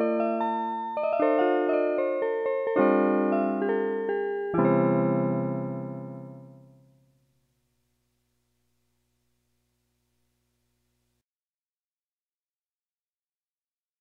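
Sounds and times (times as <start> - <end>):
keyboard chords in piano voice: 0.0 - 7.1.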